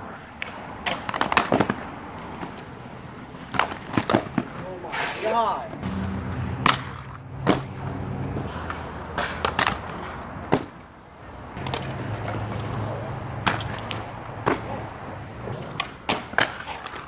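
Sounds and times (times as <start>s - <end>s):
skate wheels rolling on concrete: 0.0s - 17.0s
hard wheels clacking on concrete: 0.4s - 5.9s, 11.5s - 17.0s.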